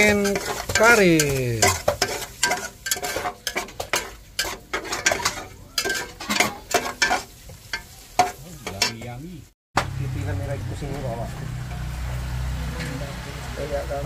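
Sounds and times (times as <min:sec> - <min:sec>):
metal spatula scraping a pot: 0:00.0 - 0:09.2
garlic sizzling in oil: 0:00.0 - 0:09.5.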